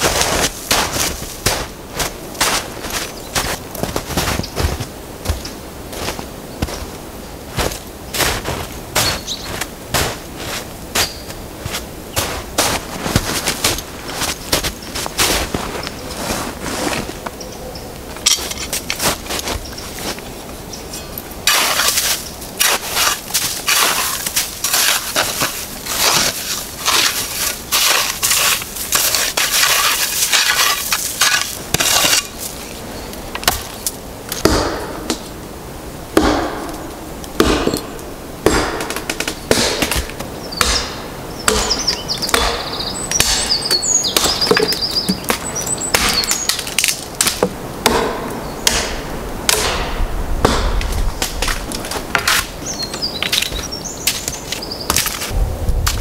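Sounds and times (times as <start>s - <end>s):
bird chirping: 9.0s - 9.6s, 11.0s - 11.4s, 17.3s - 18.0s, 40.4s - 46.8s, 52.5s - 55.1s
dry branches snapping: 18.0s - 20.3s, 21.4s - 35.3s, 36.2s - 52.6s, 53.2s - 56.0s
shovel scraping ice off stump: 21.4s - 32.5s.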